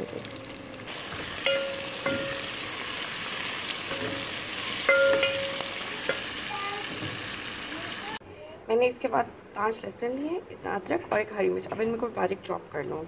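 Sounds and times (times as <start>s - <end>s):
onions sizzling in hot oil: 0.0s - 8.2s
spoon clinking on pot: 1.4s - 2.6s, 3.9s - 6.2s.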